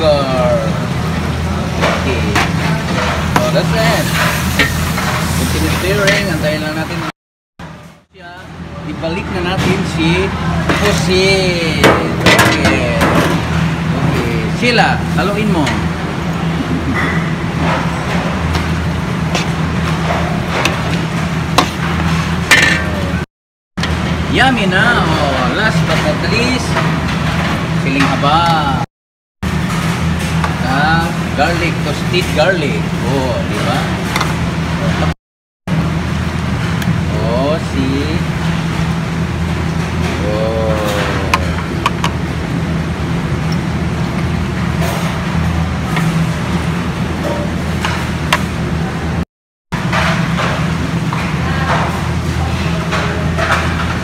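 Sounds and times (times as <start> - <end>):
low mechanical hum: 0.0 - 49.2, 49.8 - 54.0.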